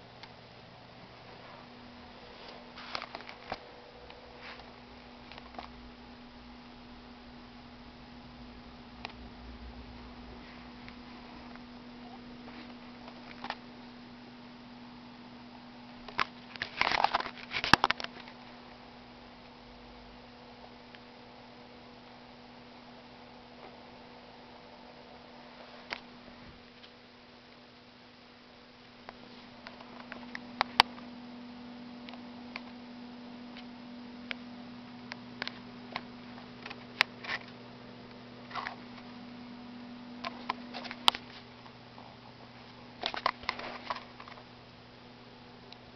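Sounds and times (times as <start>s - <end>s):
steady low hum: 0.0s - 45.9s.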